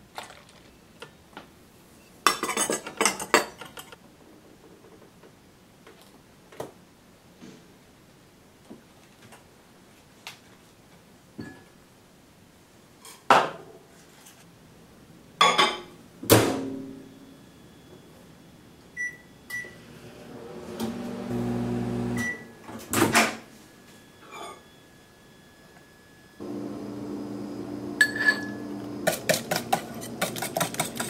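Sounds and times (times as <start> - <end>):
appliance electronic beeps: 17.0 - 20.0, 22.0 - 22.8
appliance humming: 19.0 - 22.5, 26.4 - 31.0.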